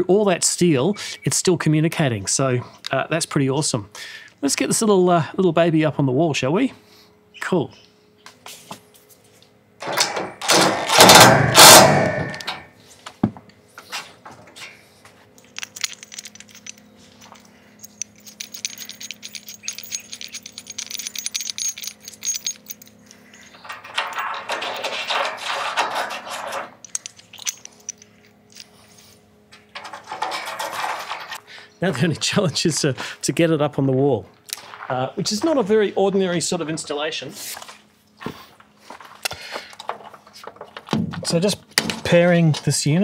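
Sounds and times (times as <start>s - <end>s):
metal clips clicking and scraping: 9.8s - 12.7s, 15.4s - 28.7s.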